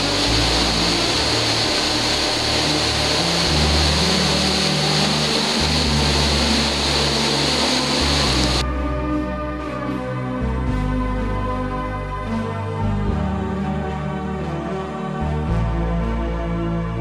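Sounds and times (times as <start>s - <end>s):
river rapids roaring: 0.0s - 8.6s
music with low held notes: 0.0s - 17.0s.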